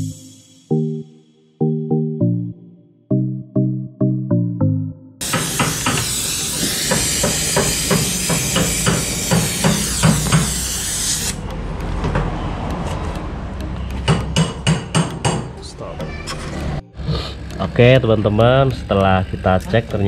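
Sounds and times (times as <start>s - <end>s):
gas hissing from pipe: 5.2s - 11.4s
regular knocking: 11.5s - 12.4s, 13.0s - 16.1s.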